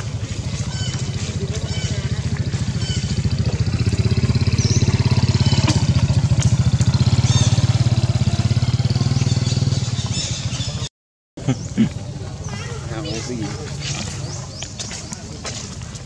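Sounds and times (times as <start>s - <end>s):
engine idling: 0.0s - 10.8s.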